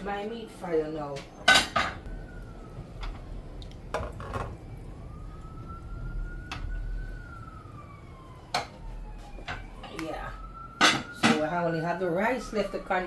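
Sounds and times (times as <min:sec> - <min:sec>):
faint siren wailing: 0:00.0 - 0:13.0
metal pot and lid clattering: 0:01.5 - 0:02.0.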